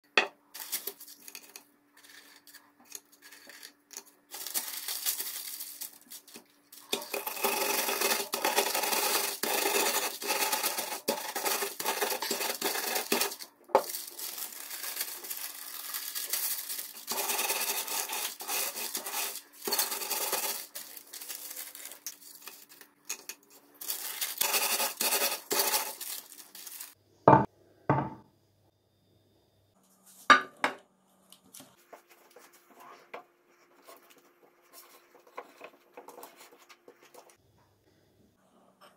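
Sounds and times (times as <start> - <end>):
paper crinkling and scraping: 0.6 - 27.0, 31.6 - 37.4
biscuits crunching: 3.2 - 27.0.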